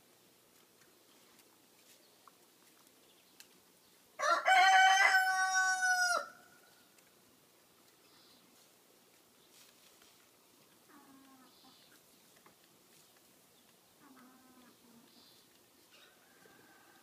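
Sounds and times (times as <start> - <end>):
rooster crowing: 4.2 - 6.5, 16.1 - 17.0.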